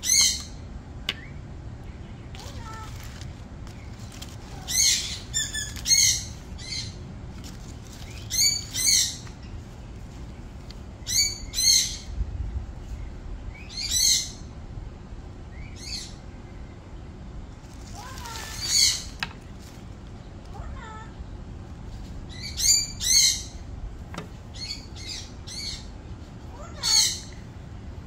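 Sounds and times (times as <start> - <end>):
dry leaves rustling: 2.3 - 11.3, 17.5 - 23.0.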